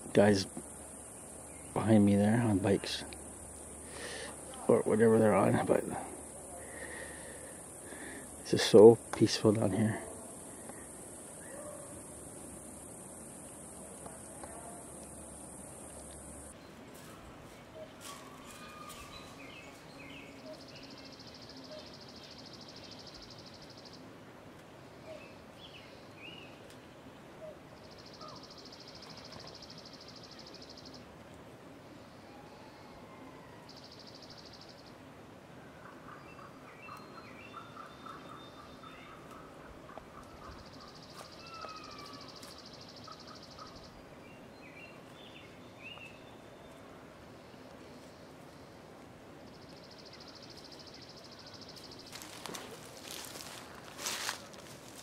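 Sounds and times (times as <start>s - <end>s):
faint hiss: 0.0s - 37.5s, 40.3s - 55.0s.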